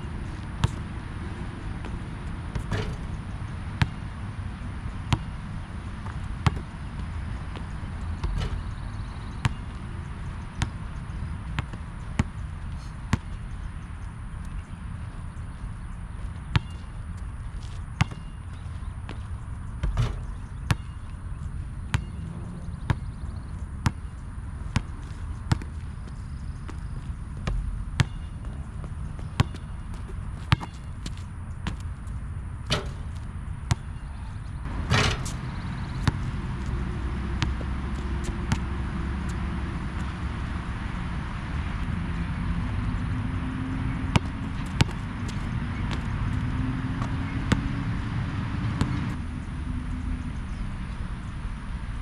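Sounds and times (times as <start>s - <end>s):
basketball bouncing on hard court: 0.6s - 0.8s, 1.7s - 4.1s, 5.0s - 5.3s, 6.0s - 9.9s, 16.5s - 16.8s, 17.6s - 18.4s, 19.1s - 21.1s, 21.8s - 24.1s, 24.7s - 31.9s, 32.7s - 34.0s, 34.7s - 40.1s, 44.0s - 47.8s, 48.8s - 49.1s.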